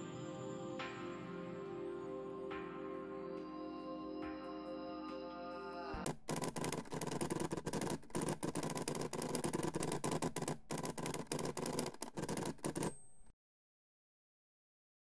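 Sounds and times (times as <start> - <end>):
soft background music: 0.0 - 6.0
rapid keyboard typing: 6.0 - 13.3.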